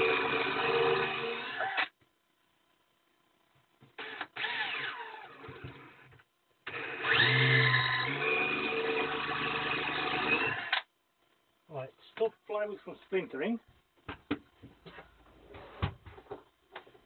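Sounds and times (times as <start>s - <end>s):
electric drill whining into wood: 0.0s - 1.9s, 4.0s - 6.1s, 6.7s - 10.9s.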